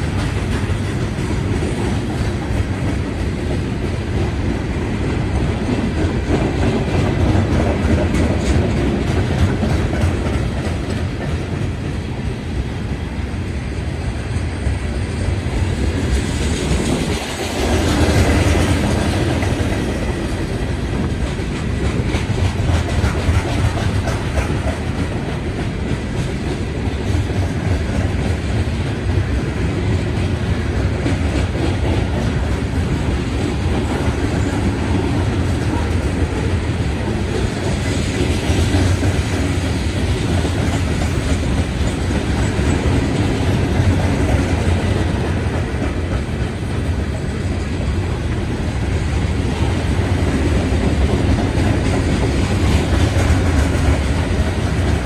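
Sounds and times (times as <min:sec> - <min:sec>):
freight train wheels rumbling on rails: 0:00.0 - 0:55.0.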